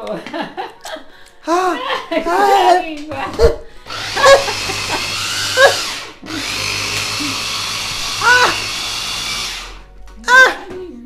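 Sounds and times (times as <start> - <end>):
electric food chopper running: 3.9 - 9.9.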